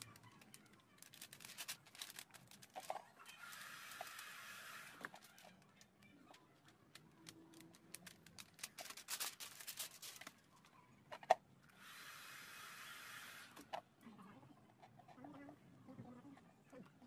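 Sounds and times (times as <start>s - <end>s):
plastic film crinkling: 0.0s - 10.6s
heat gun blowing: 11.8s - 13.6s.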